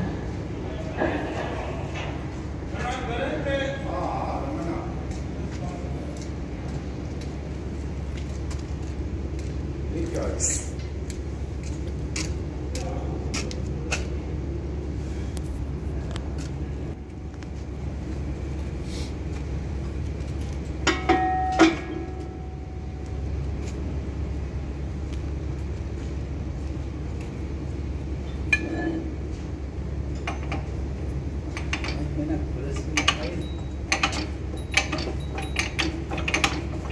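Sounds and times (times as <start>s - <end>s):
steady low hum: 0.0s - 36.9s
metal clanks ringing: 20.8s - 23.1s, 28.5s - 29.2s, 32.7s - 36.9s.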